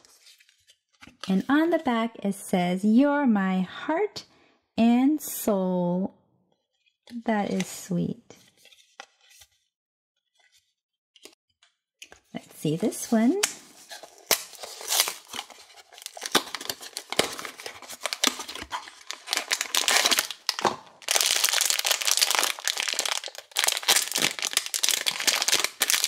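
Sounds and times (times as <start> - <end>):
cardboard box tearing: 13.8 - 26.0
foil pouch crinkling: 13.8 - 26.0.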